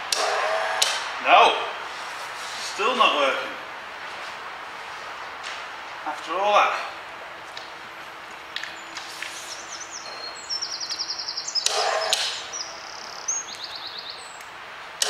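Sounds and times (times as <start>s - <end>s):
bird trilling: 8.7s - 14.5s.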